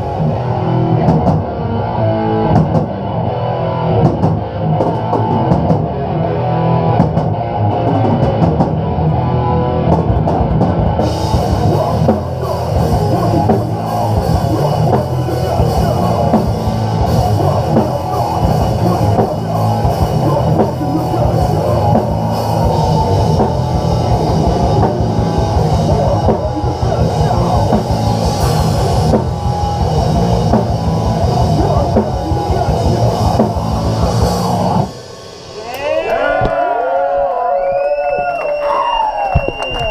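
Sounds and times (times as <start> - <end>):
drum kit: 0.0 - 36.8
distorted electric guitars: 0.0 - 39.9
shouted vocals: 35.6 - 39.9.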